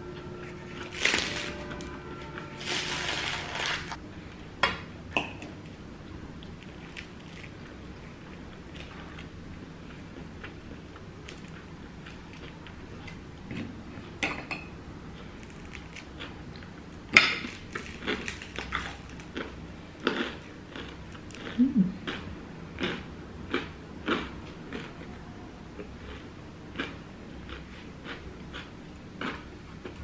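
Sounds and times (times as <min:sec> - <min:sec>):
bread crust tearing: 0:02.6 - 0:04.0
chewing: 0:17.5 - 0:22.2, 0:22.8 - 0:25.1, 0:25.8 - 0:30.0.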